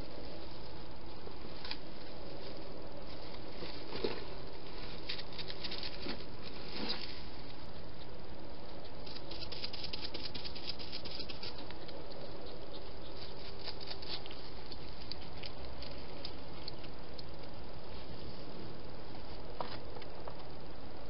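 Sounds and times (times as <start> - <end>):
hedgehogs clicking and crackling: 7.5 - 17.6.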